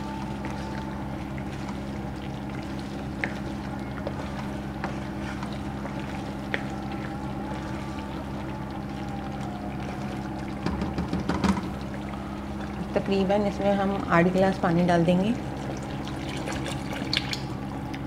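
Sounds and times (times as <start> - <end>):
steady low hum: 0.0 - 18.0
spoon stirring thick gravy: 0.1 - 10.7.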